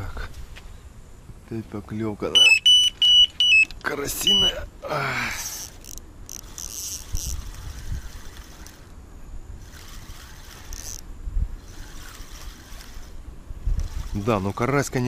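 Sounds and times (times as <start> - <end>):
crickets chirping: 0.0 - 15.0
fishing reel and rod knocks: 5.4 - 7.4.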